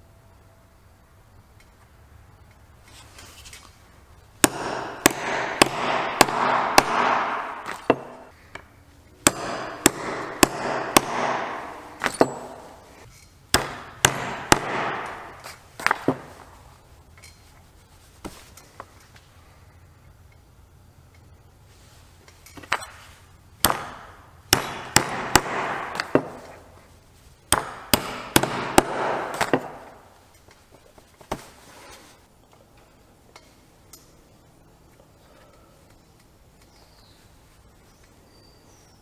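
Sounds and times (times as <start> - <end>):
hammer striking leather chisel: 4.4 - 8.3, 9.2 - 12.9, 13.5 - 16.4, 23.6 - 26.6, 27.5 - 30.0.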